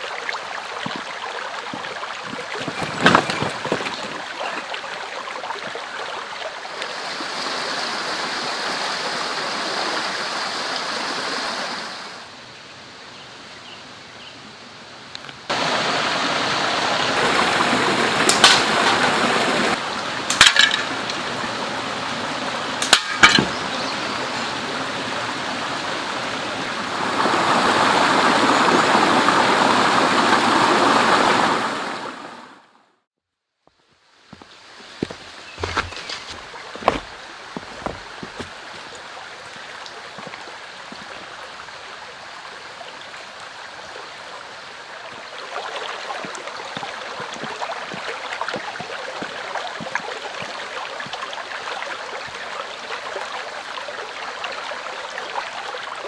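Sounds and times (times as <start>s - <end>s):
stream rushing over rocks: 0.0s - 12.4s, 15.5s - 32.6s, 34.1s - 56.0s
slingshot cracks: 18.3s - 18.7s, 22.8s - 23.5s.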